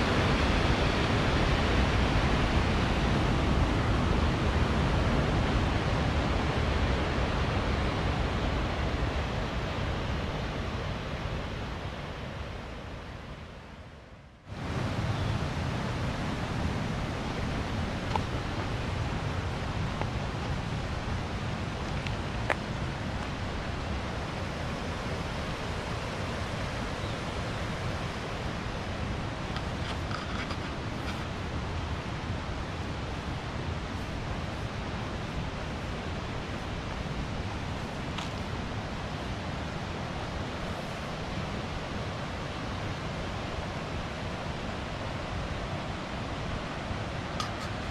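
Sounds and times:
water rushing along canal: 0.0 - 47.9
wind buffeting microphone: 14.5 - 47.9.

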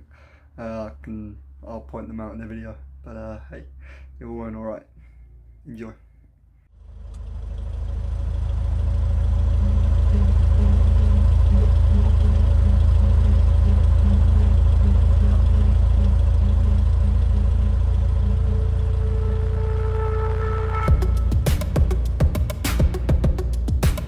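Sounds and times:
aircraft engine drone from cabin: 6.9 - 21.4.

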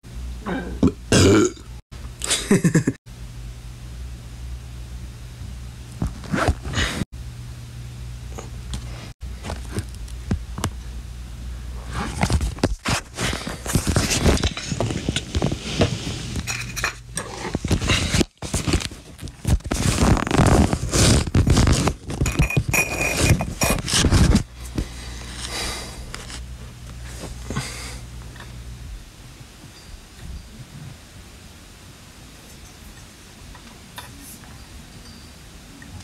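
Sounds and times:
steady low hum: 0.1 - 36.0
scraping and knocking handling noise: 11.8 - 26.4.

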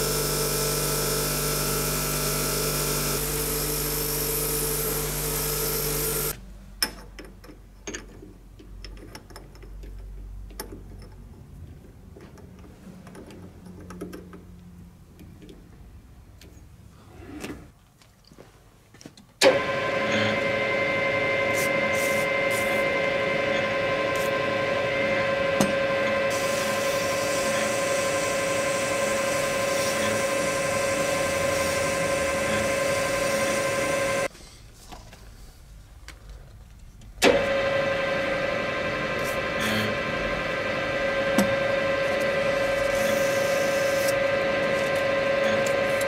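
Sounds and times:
lathe running with whine: 0.0 - 6.4, 19.4 - 34.3, 37.2 - 46.0.

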